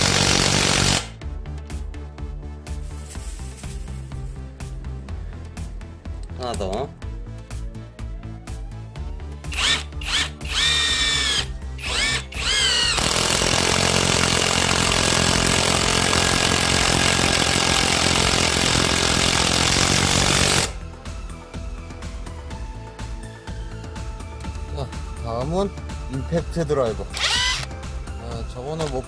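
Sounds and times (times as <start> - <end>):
cordless driver motor whining: 9.5 - 18.1, 27.1 - 27.7.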